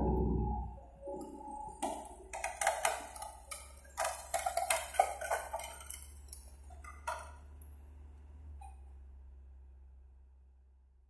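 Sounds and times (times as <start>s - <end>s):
excavator engine running: 0.0s - 9.4s
timber and sheet metal cracking: 1.2s - 7.5s.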